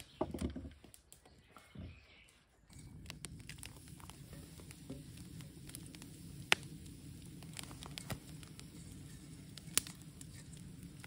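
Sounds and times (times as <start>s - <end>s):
wood fire crackling: 0.0s - 11.0s
loud sharp pops from fire: 2.9s - 11.0s.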